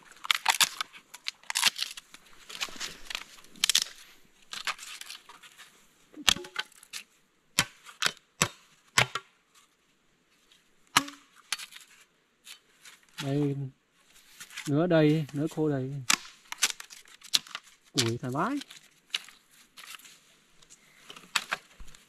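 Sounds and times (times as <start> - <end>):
dry branches rustling and crackling: 0.0 - 8.2, 8.8 - 22.0
wood cracking and knocking: 16.1 - 18.6.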